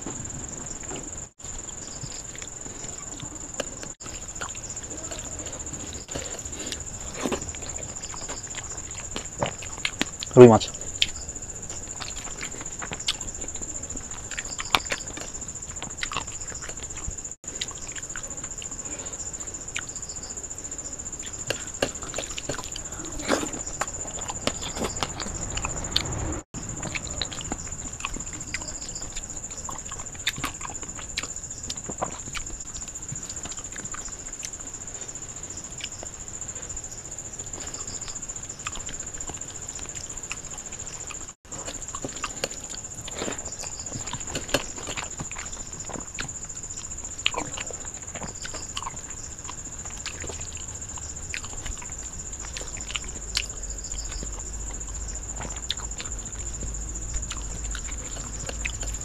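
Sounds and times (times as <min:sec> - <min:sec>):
wet chewing and lip smacks: 0:02.1 - 0:18.8, 0:37.4 - 0:59.0.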